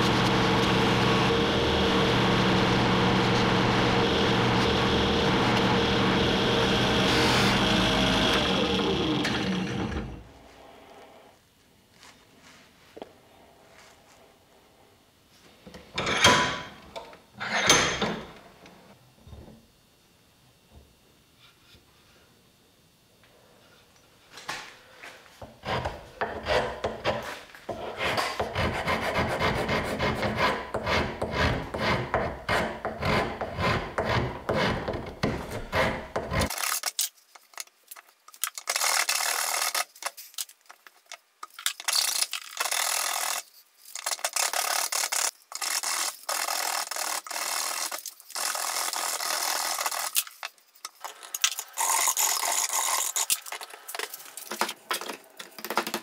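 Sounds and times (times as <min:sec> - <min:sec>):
hand file rasping on wood: 0:25.6 - 0:36.5.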